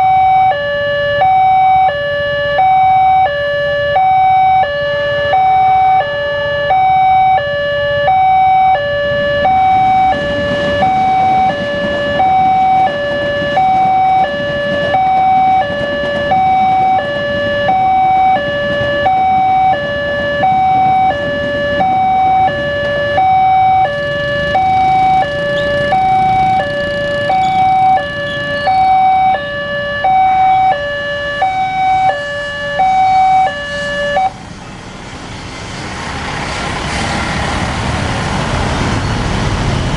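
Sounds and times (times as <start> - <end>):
level crossing alarm two tones: 0.0 - 34.4.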